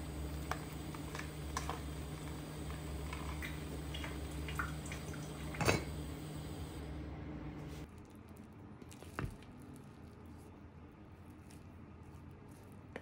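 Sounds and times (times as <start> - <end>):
steady low hum: 0.0 - 7.9
kitchenware clinking: 0.4 - 6.1.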